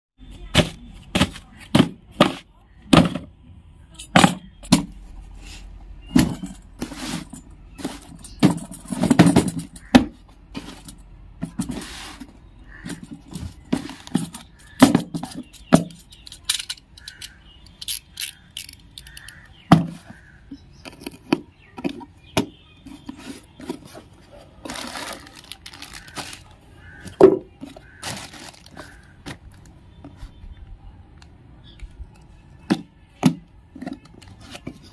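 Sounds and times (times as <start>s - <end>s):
cardboard boxes knocking: 0.5s - 3.3s
rustling of tarp and boxes: 4.8s - 16.0s, 21.1s - 30.4s.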